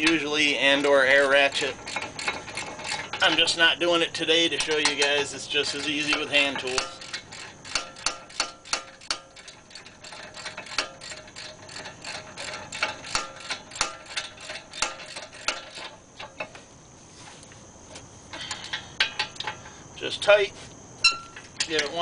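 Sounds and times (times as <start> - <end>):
hand ratchet clicking: 0.0 - 16.5.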